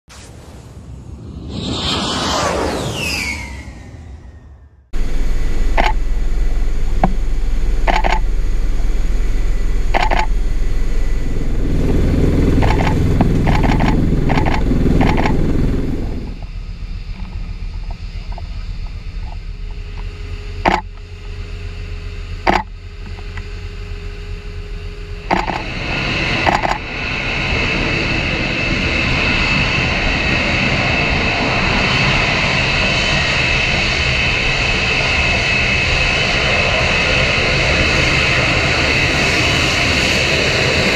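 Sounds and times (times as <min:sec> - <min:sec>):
aircraft rumble in flight: 0:00.1 - 0:40.9
jet engine roar: 0:00.1 - 0:40.9
faint steady hum: 0:05.0 - 0:25.7
sharp clicks: 0:07.8 - 0:08.3, 0:09.9 - 0:10.4, 0:12.6 - 0:15.4, 0:22.5 - 0:22.7, 0:25.3 - 0:25.6.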